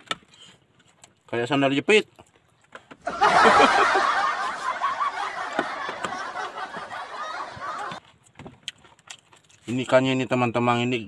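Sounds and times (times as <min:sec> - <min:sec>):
canned laugh track: 0:03.0 - 0:08.0.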